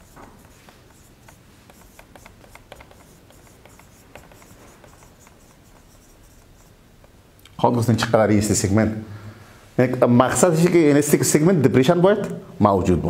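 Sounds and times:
marker writing on whiteboard: 0:00.0 - 0:07.2.

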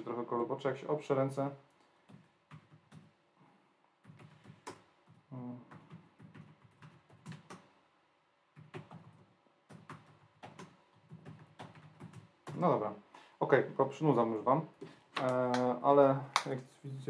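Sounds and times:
laptop keyboard typing: 0:02.0 - 0:03.1, 0:04.0 - 0:07.7, 0:08.6 - 0:12.6.

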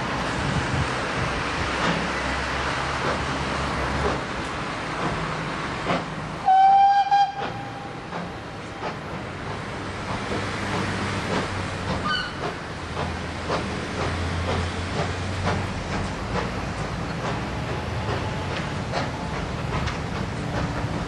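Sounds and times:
train low rumble: 0:00.0 - 0:21.0
locomotive whistle blast: 0:06.4 - 0:07.9.

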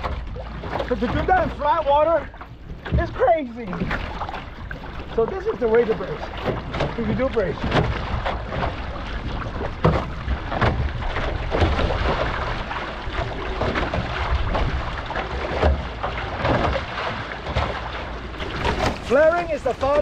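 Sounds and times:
paddle splashes: 0:00.0 - 0:20.0
water rushing and splashing: 0:00.0 - 0:20.0
wind on microphone: 0:07.6 - 0:15.9.

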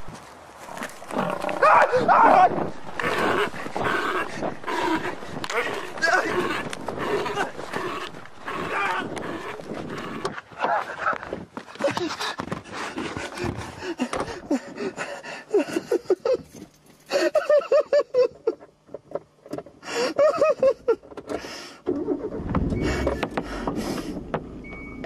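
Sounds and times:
rapid voiced cries: 0:01.3 - 0:10.3.

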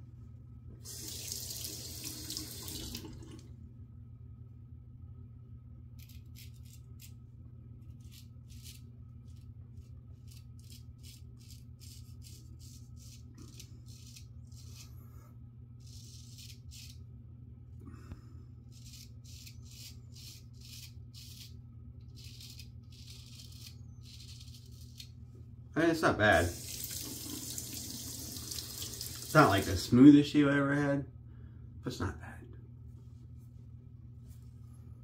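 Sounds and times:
steady low hum: 0:00.0 - 0:35.0
razor scraping beard stubble: 0:06.0 - 0:07.2, 0:07.8 - 0:15.0, 0:15.8 - 0:17.0, 0:18.7 - 0:25.1.

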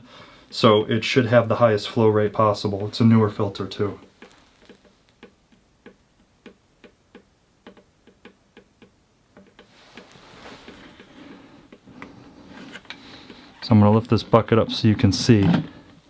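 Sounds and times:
soft rustling: 0:01.6 - 0:05.3, 0:09.4 - 0:16.0.

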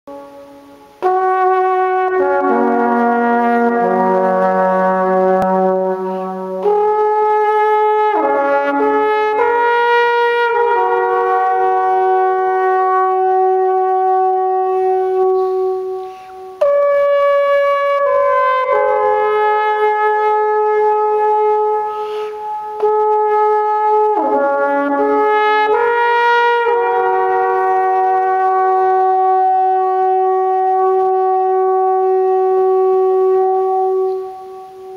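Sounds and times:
alphorn long held notes: 0:00.1 - 0:34.9
player breathing: 0:15.9 - 0:16.6, 0:21.9 - 0:22.5.

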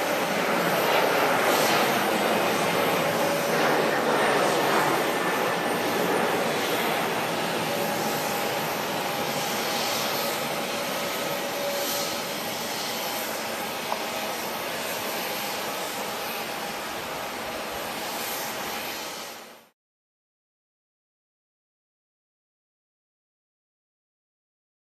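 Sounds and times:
distant jet roar: 0:00.0 - 0:19.3.

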